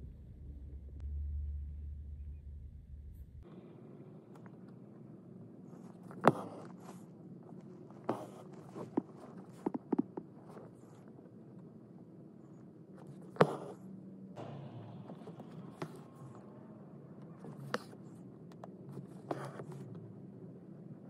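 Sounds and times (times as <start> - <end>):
faint low hum: 0.0 - 21.0
soft scratching: 5.6 - 11.7, 13.0 - 13.8, 17.4 - 20.0.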